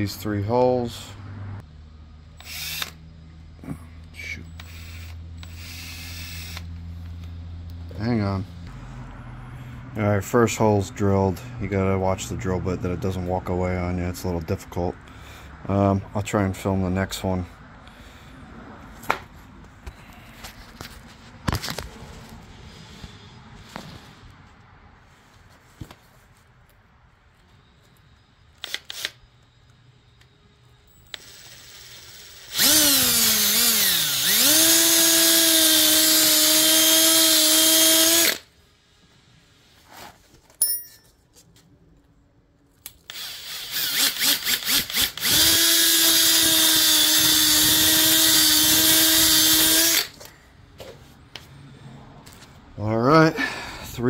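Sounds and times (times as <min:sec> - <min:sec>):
electric drill boring through rubber: 0:02.4 - 0:03.0, 0:04.6 - 0:06.7, 0:31.1 - 0:38.5, 0:43.1 - 0:50.2.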